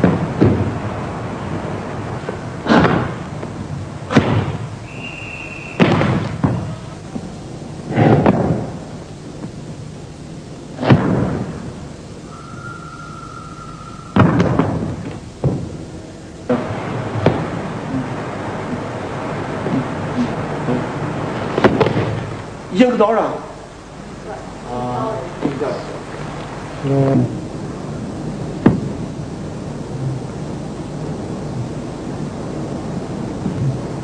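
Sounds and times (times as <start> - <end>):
short steady tones: 12.0 - 16.7.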